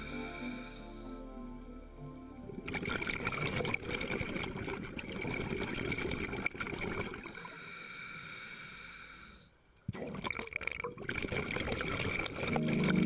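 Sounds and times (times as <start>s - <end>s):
faint steady high tone: 0.0s - 4.1s
underwater exhaust bubbles gurgling: 2.2s - 7.6s.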